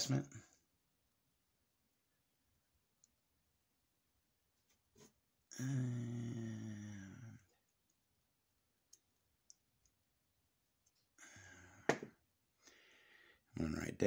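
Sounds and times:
man humming: 5.5 - 7.5
breath: 11.2 - 12.0, 12.6 - 13.5.

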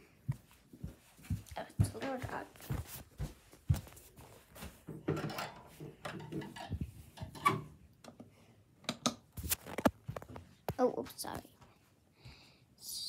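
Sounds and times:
rubbing and rustling: 0.9 - 4.9.

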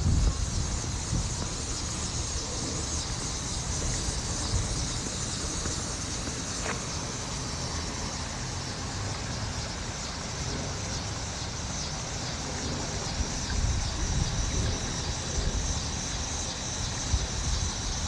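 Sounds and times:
floodwater rushing across road: 0.0 - 14.0
wind rumble on microphone: 0.0 - 18.0.

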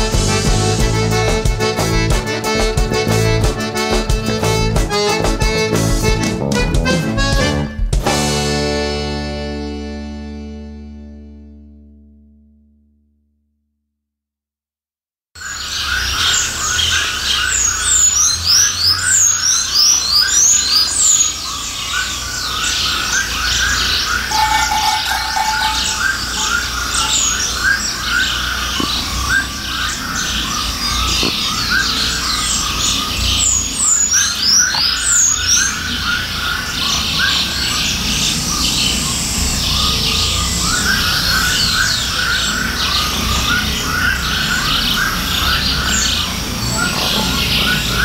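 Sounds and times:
birds chirping: 15.4 - 48.0.

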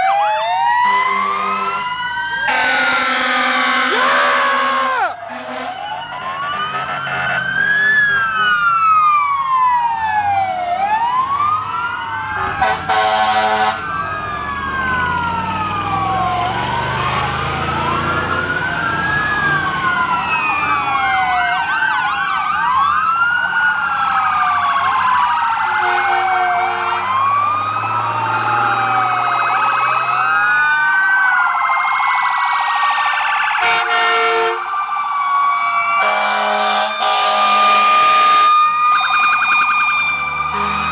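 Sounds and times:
sirens wailing: 0.0 - 40.9
truck engines running: 0.0 - 40.9
truck air horns blasting: 0.8 - 7.6, 12.4 - 13.9, 25.8 - 27.2, 33.4 - 34.7, 36.0 - 38.6, 40.4 - 40.9.

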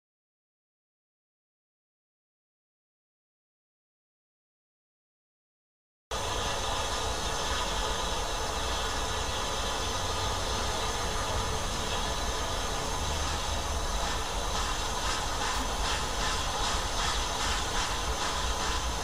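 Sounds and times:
steam hissing: 6.1 - 19.0
steam locomotive rumble: 6.1 - 19.0.

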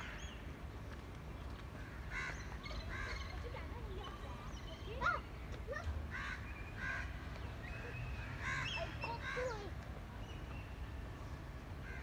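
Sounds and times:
crows cawing: 1.8 - 3.2, 6.1 - 7.2, 8.3 - 9.6.

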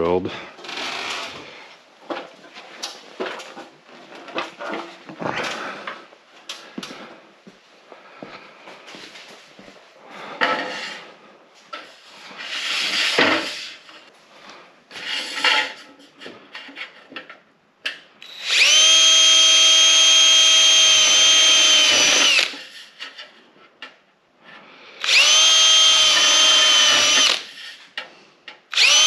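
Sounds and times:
cordless drill whining: 18.2 - 22.7, 25.0 - 27.6, 28.7 - 29.0.

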